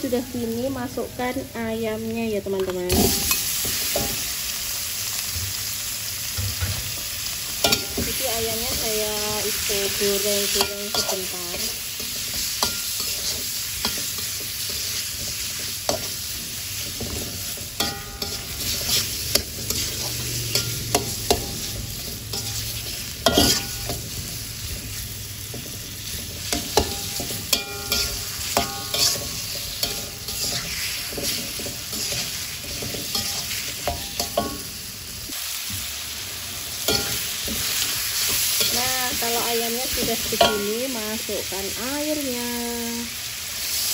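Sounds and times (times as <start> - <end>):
chicken sizzling in oil: 0.0 - 43.9
metal spatula scraping pan: 7.6 - 34.6.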